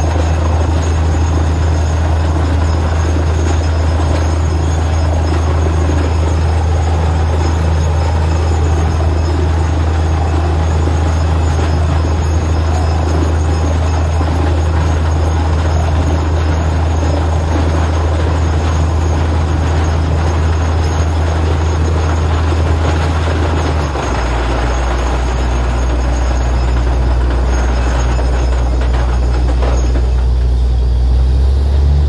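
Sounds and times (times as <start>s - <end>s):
low diesel engine drone: 0.0s - 32.0s.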